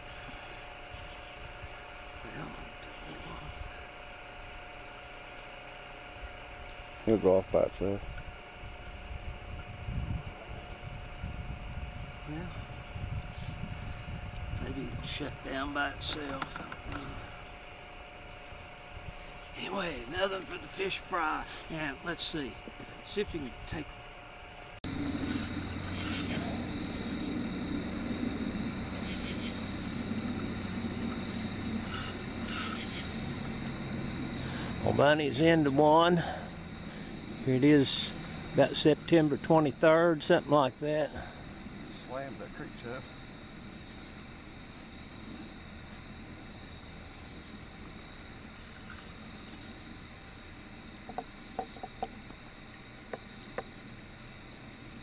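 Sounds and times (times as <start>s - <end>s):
crickets trilling: 0.0s - 55.0s
night insects chorus: 0.0s - 55.0s
steady low rumble: 24.8s - 48.6s.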